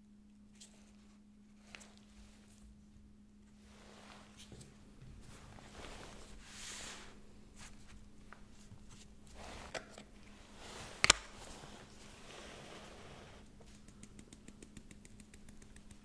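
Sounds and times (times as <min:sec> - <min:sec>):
faint steady hum: 0:00.0 - 0:16.0
plastic gloves rustling: 0:00.5 - 0:13.9.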